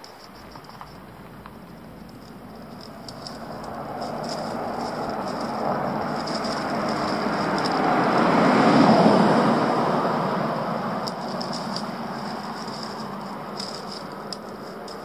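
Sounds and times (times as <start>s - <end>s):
vehicle passing: 0.8s - 15.0s.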